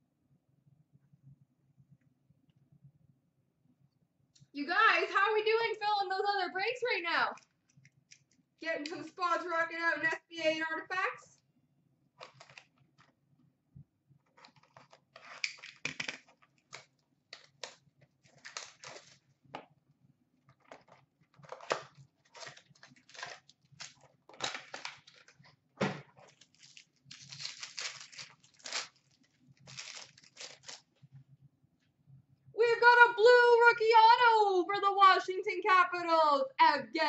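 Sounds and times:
cardboard and wrapper tearing: 0:12.2 - 0:12.8, 0:14.4 - 0:19.3, 0:20.6 - 0:25.5, 0:26.1 - 0:30.9.

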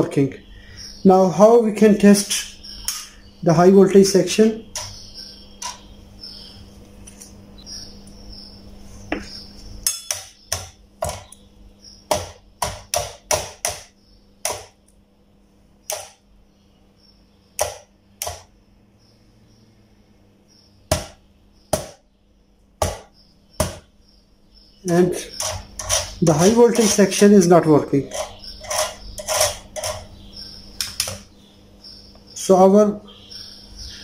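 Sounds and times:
low steady hum: 0:00.0 - 0:34.0
tool tapping metal wire grid: 0:09.8 - 0:11.4, 0:12.1 - 0:14.8, 0:15.9 - 0:16.2, 0:24.9 - 0:27.2, 0:28.0 - 0:30.1.

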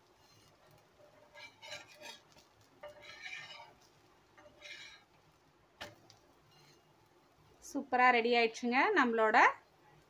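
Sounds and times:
metal spatula scraping iron pan: 0:00.0 - 0:05.2, 0:06.4 - 0:06.9.

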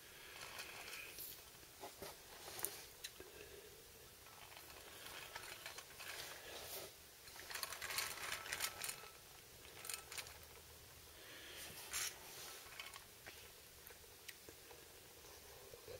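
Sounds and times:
toy truck parts clicking and rattling: 0:00.3 - 0:01.6, 0:04.2 - 0:06.4, 0:07.2 - 0:10.7, 0:11.9 - 0:13.1.

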